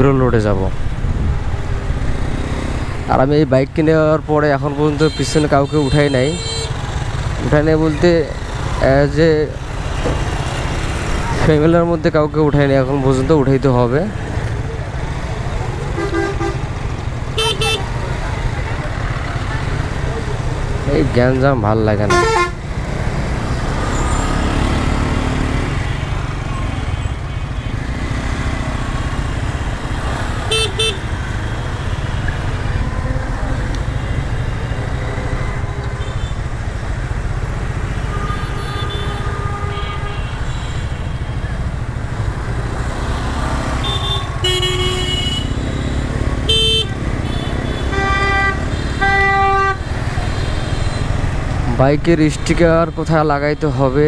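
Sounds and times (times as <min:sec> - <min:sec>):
motorcycle engine rumbling: 0:00.0 - 0:54.0
vehicle horns honking: 0:04.9 - 0:06.9, 0:15.9 - 0:18.0, 0:22.0 - 0:22.7, 0:30.4 - 0:36.5, 0:38.1 - 0:41.4, 0:43.7 - 0:51.2.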